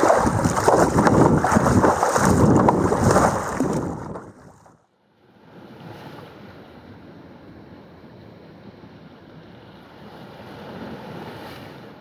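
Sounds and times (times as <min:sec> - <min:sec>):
waves breaking: 0:00.0 - 0:04.7
wind on microphone: 0:00.0 - 0:04.7.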